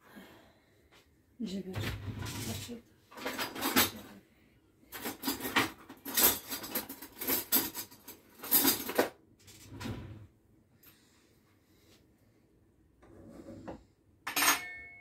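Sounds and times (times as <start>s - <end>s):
dishes and utensils clattering: 2.2s - 4.1s, 4.9s - 9.2s, 13.7s - 15.0s.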